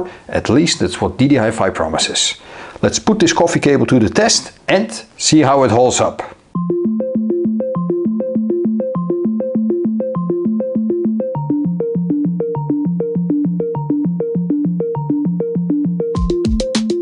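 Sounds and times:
synthesizer arpeggio: 6.6s - 17.0s
drum beat: 16.2s - 17.0s.

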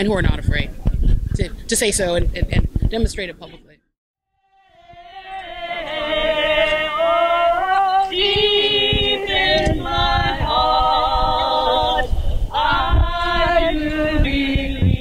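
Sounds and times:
group singing unaccompanied: 4.5s - 15.0s.

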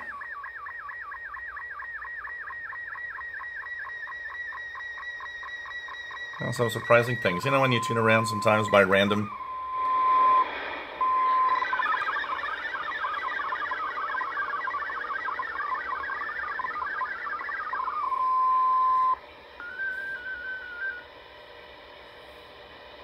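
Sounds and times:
warbling digital data tones: 0.0s - 21.0s
faint static hiss: 6.0s - 23.0s.

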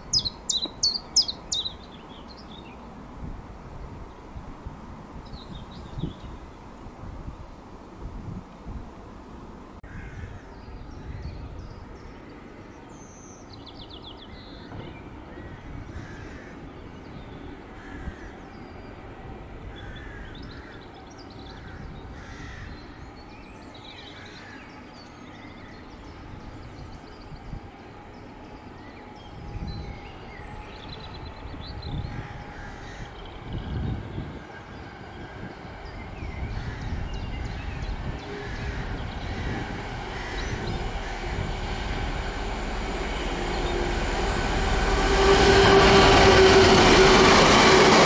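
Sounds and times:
birds singing: 0.0s - 2.9s, 10.2s - 47.9s
freight train rumble: 13.5s - 48.0s
low outdoor rumble: 36.5s - 48.0s.

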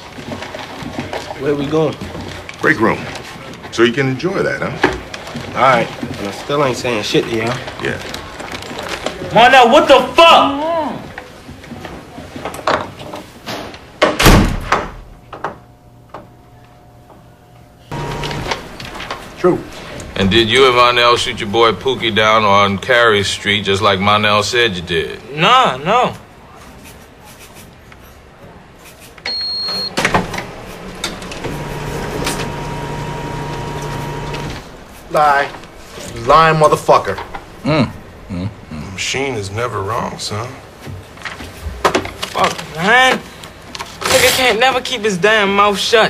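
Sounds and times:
door slamming: 14.0s - 15.1s
photocopier running with hum: 15.3s - 22.4s, 29.4s - 37.4s
mechanical clunks: 17.9s - 19.2s, 29.2s - 34.8s.

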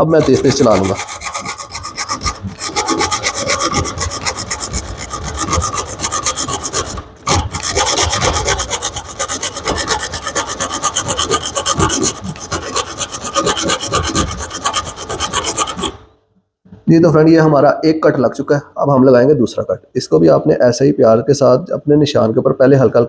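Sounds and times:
hacksaw blade rasping: 0.0s - 16.1s.

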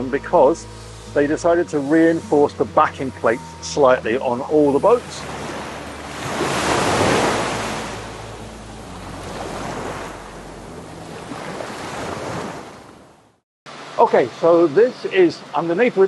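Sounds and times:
ocean surf rushing: 4.4s - 13.0s.

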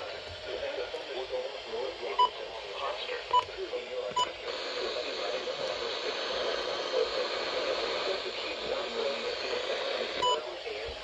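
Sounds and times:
faint garbled radio voice: 0.0s - 11.0s
radio static hiss: 0.0s - 11.0s.

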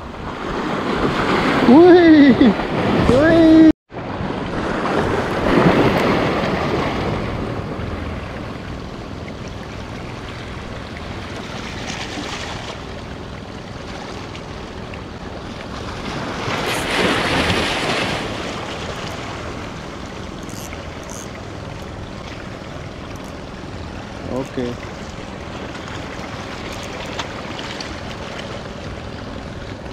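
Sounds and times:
waves breaking against rocks: 0.1s - 1.8s, 2.4s - 8.6s, 10.0s - 13.0s, 13.8s - 20.2s, 24.0s - 29.9s.

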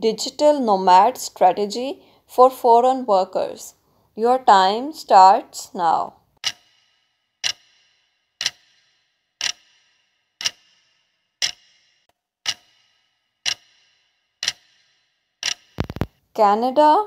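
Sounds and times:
clock ticking: 6.4s - 16.1s
rapid clicks: 12.5s - 16.2s.

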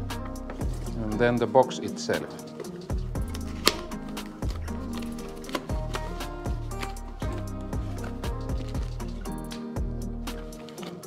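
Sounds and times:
held instrumental tones: 0.0s - 11.0s
low drum beats: 2.9s - 10.5s.

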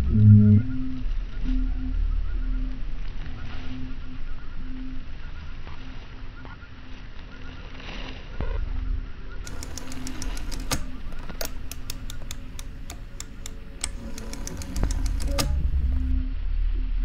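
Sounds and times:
low rumble: 0.0s - 4.3s
sharp mechanical clicks and taps: 9.4s - 16.1s.

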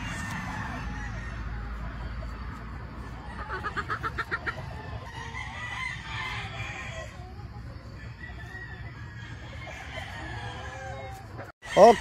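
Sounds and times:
rooster crowing: 0.0s - 1.9s, 8.0s - 12.0s
chickens clucking: 0.0s - 12.0s.

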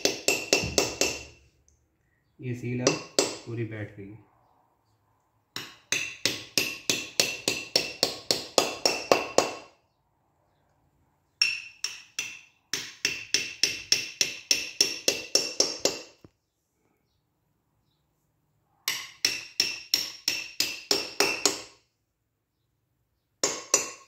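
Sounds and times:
hammer tapping metal: 0.0s - 1.4s, 2.8s - 3.5s, 5.5s - 9.7s, 11.4s - 16.3s, 18.9s - 21.8s, 23.4s - 24.0s.

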